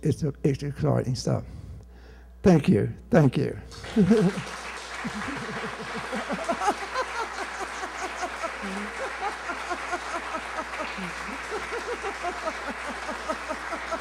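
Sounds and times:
audience applauding: 0:03.7 - 0:14.0.

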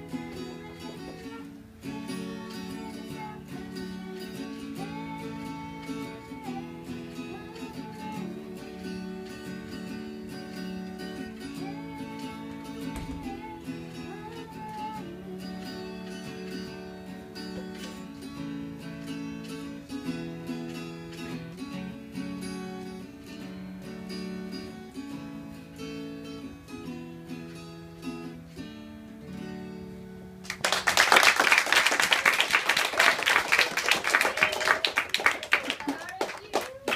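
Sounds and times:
acoustic guitar strumming: 0:00.0 - 0:30.9
children applauding: 0:30.4 - 0:36.9.

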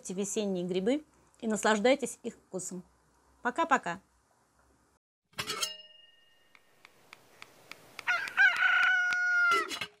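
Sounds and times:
ringing hit: 0:05.5 - 0:06.5
rooster crowing: 0:08.0 - 0:09.8.

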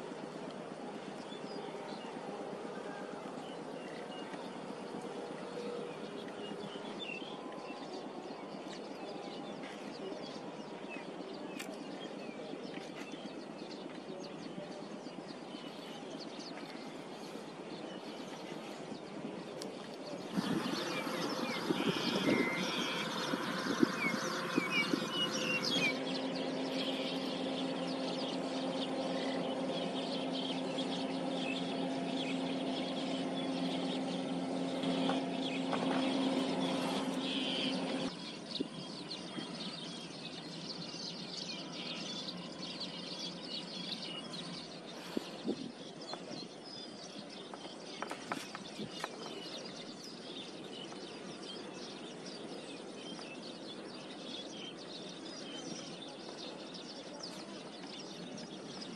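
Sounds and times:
steady engine drone: 0:00.0 - 0:12.9, 0:15.7 - 0:46.6
outdoor background noise: 0:00.0 - 0:58.9
bird chirps: 0:20.3 - 0:38.7.

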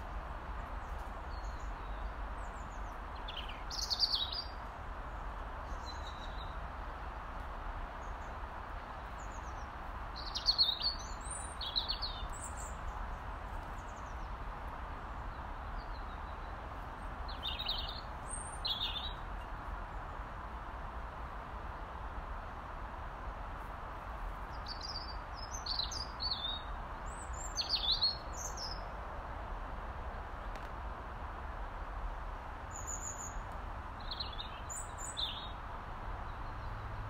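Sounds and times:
steady background hiss: 0:00.0 - 0:37.0
robin calling: 0:01.3 - 0:04.6, 0:10.2 - 0:12.9, 0:17.3 - 0:19.2, 0:24.6 - 0:28.8, 0:34.0 - 0:35.6.

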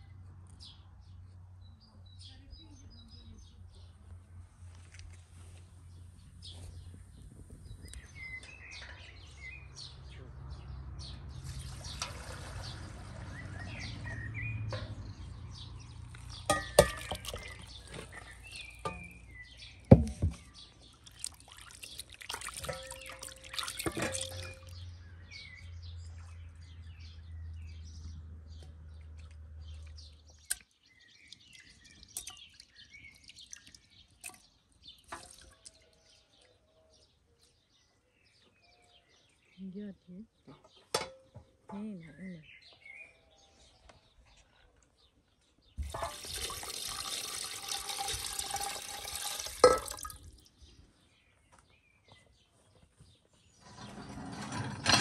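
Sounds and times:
birds chirping: 0:05.9 - 0:54.9
water dripping and sloshing: 0:11.4 - 0:13.6, 0:16.0 - 0:19.3, 0:20.0 - 0:24.8, 0:31.3 - 0:35.9, 0:45.8 - 0:50.5
water pouring and splashing: 0:11.4 - 0:13.7, 0:16.0 - 0:24.8, 0:31.2 - 0:35.8, 0:45.8 - 0:50.5.

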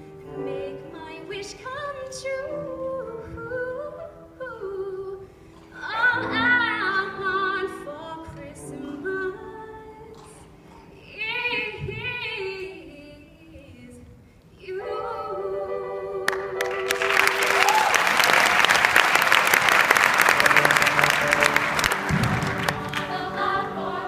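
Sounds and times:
choir singing unaccompanied: 0:14.8 - 0:17.3, 0:20.6 - 0:24.0
audience applause: 0:16.6 - 0:24.0.

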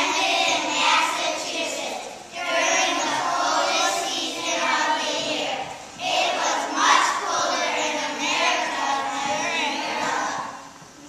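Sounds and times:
children singing in unison: 0:00.0 - 0:10.8.

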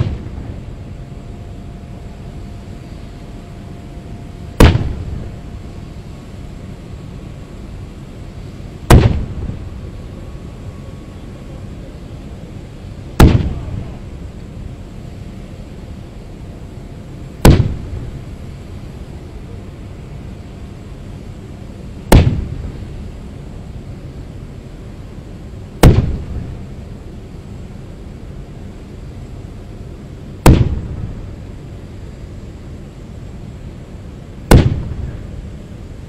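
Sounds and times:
cannon shots with echo: 0:00.0 - 0:00.6, 0:04.6 - 0:05.4, 0:08.9 - 0:09.7, 0:13.2 - 0:14.1, 0:17.4 - 0:18.2, 0:22.1 - 0:22.8, 0:25.8 - 0:26.7, 0:30.4 - 0:31.3, 0:34.5 - 0:35.4.

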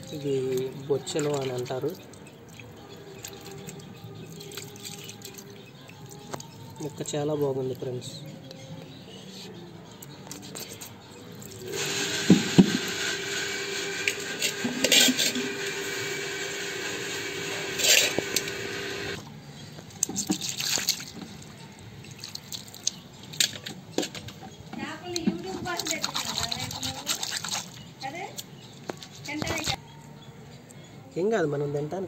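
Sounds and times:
water running: 0:00.0 - 0:07.1, 0:11.4 - 0:19.2
knocks and clatters of container: 0:20.0 - 0:21.4.

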